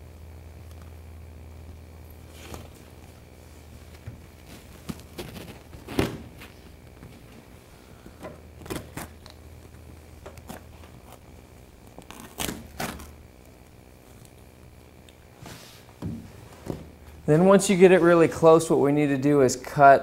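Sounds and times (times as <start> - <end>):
vinyl sheet crackling and knocking: 2.2 - 7.6.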